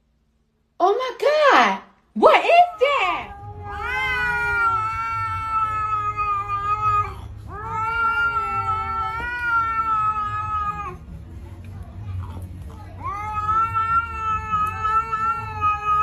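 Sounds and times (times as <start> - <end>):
cat yowling: 2.4 - 11.0, 12.9 - 16.0.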